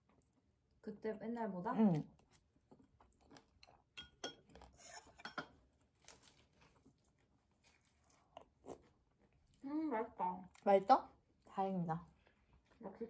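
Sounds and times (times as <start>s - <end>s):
chopsticks clinking against dishes: 4.0s - 4.6s.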